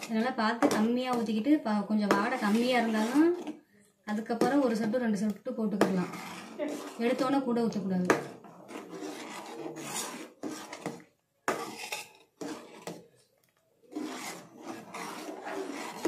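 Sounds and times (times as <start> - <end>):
steel spoon scraping a steel pan: 2.1 - 3.5, 5.8 - 7.3, 8.2 - 13.0, 13.9 - 16.0.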